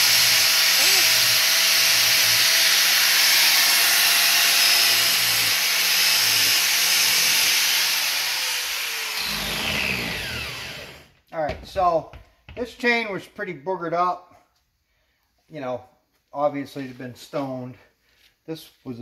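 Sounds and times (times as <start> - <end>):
angle grinder grinding metal: 0.0 - 11.1
grinder winding down whine: 0.0 - 11.1.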